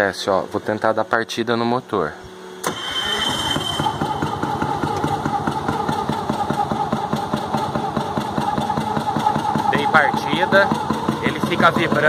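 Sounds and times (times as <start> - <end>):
rotary engine running roughly: 2.7 - 12.0.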